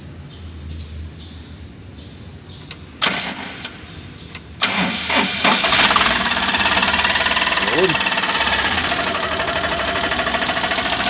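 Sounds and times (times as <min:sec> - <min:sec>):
engine running: 0:02.7 - 0:11.0
starter motor cranking: 0:04.6 - 0:11.0.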